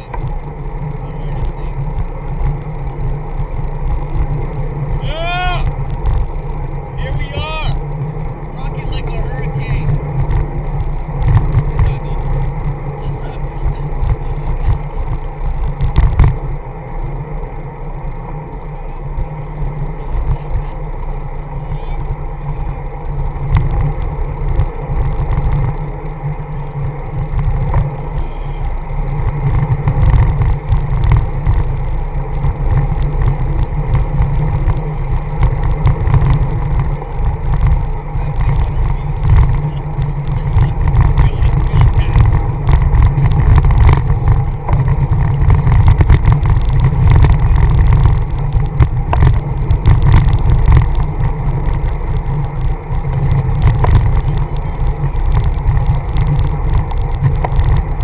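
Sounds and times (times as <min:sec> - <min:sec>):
faint ticks: 0:00.0 - 0:06.9, 0:09.8 - 0:58.0
road and tyre noise: 0:00.0 - 0:58.0
wind buffeting microphone: 0:19.2 - 0:58.0.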